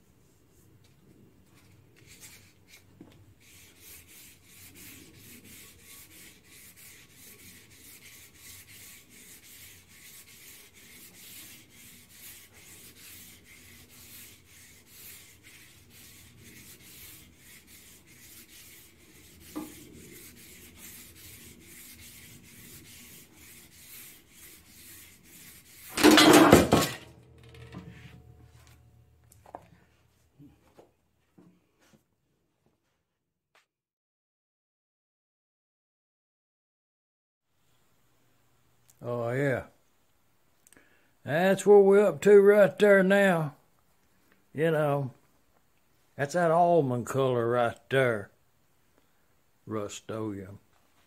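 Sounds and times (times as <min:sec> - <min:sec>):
sanding sponge scraping metal: 0:03.4 - 0:26.9.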